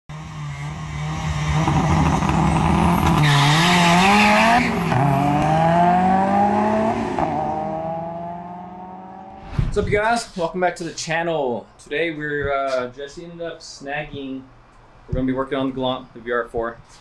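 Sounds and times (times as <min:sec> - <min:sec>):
car engine accelerating: 0:00.1 - 0:09.8.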